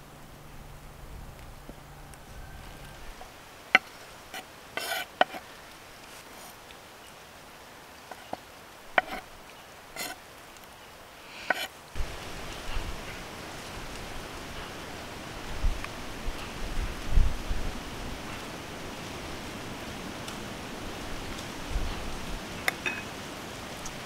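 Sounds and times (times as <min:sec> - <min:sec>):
steady airy hiss: 0:00.0 - 0:24.0
knife scraping on cutting board: 0:04.3 - 0:05.5, 0:09.0 - 0:09.3, 0:10.0 - 0:10.2, 0:11.4 - 0:11.7.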